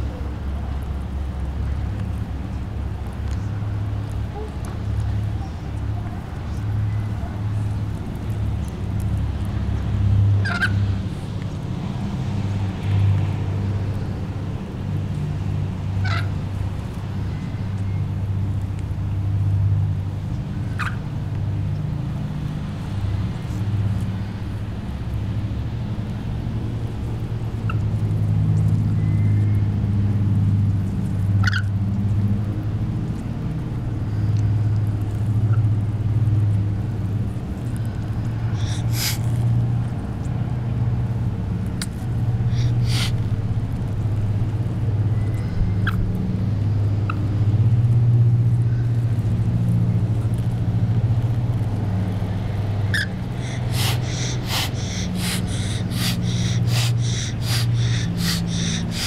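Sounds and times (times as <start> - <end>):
parrot hissing: 38.6 - 39.3, 41.8 - 43.2, 52.9 - 59.0
bird chirps and squawks: 42.5 - 43.1, 52.9 - 59.0
steady low hum: 51.7 - 59.0.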